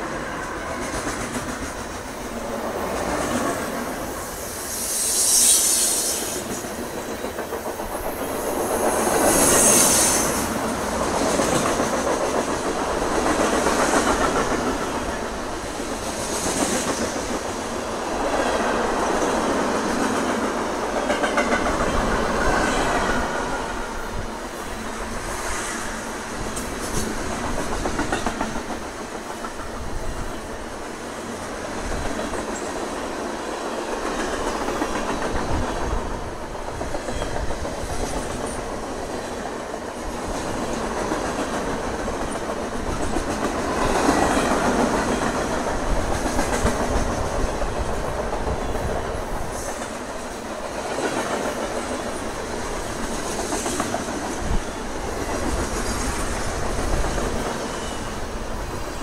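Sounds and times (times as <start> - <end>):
freight train wheels rumbling on rail: 0.0 - 59.0.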